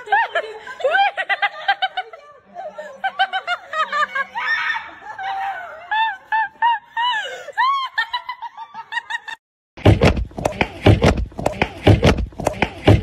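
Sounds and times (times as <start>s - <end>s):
woman laughing and squealing: 0.0s - 9.4s.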